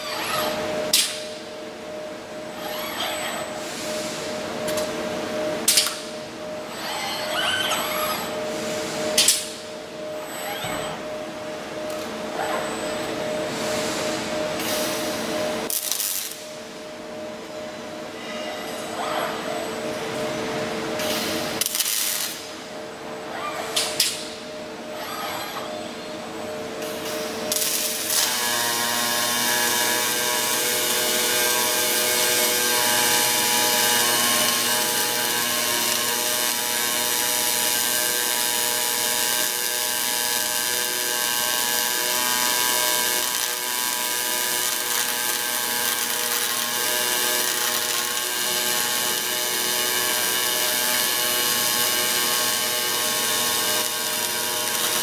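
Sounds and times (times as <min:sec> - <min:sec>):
arc welder crackling and hissing: 0:00.0 - 0:01.5, 0:02.5 - 0:09.7, 0:13.6 - 0:16.8, 0:21.0 - 0:22.6, 0:26.8 - 0:55.0.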